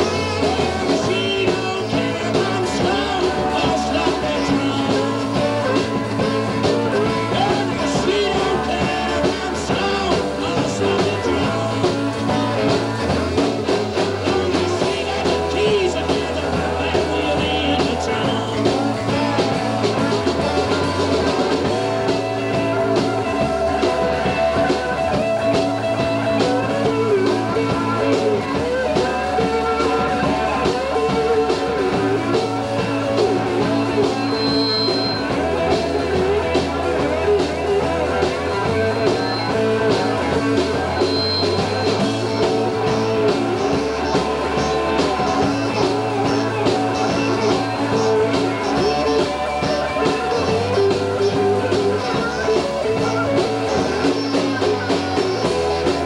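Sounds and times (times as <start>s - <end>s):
blues band playing: 0.0s - 56.0s
saxophone lead: 0.0s - 56.0s.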